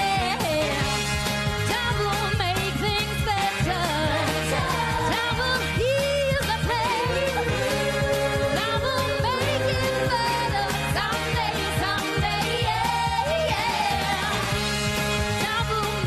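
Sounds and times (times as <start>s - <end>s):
woman singing lead: 0.0s - 0.9s, 1.6s - 14.5s, 15.3s - 16.0s
bass: 0.0s - 16.0s
brass and saxophone section: 0.0s - 16.0s
drums: 0.0s - 16.0s
electric guitar: 0.0s - 16.0s
backing vocals: 3.3s - 14.5s.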